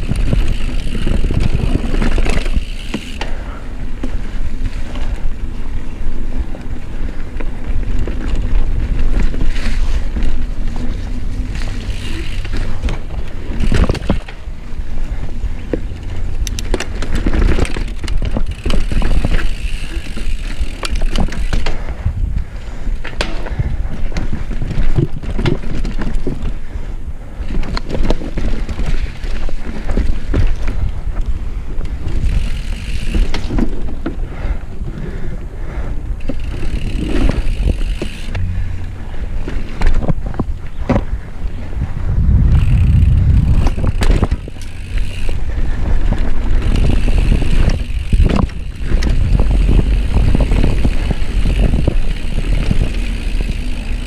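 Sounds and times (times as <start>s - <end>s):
bicycle tyre rumble: 0.0s - 54.0s
chain and frame rattling: 36.2s - 40.6s.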